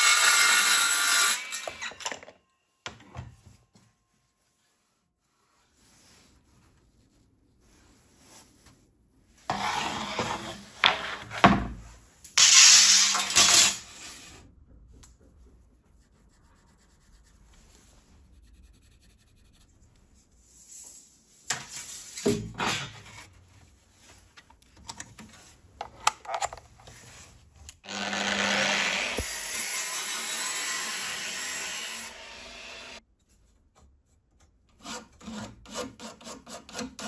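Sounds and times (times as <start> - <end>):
rubbing and scraping on workbench: 3.9 - 12.5
angle grinder running: 27.8 - 31.0.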